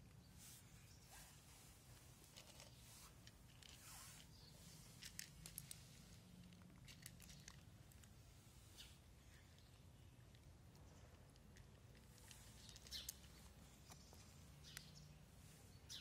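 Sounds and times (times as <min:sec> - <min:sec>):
cats crunching dry kibble: 0:01.9 - 0:08.4, 0:09.3 - 0:14.9.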